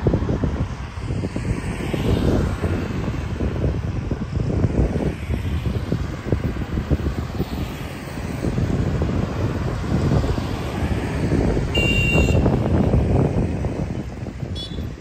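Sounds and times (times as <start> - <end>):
motorbikes driving by: 0.3 - 15.0
short high beep: 11.8 - 12.4.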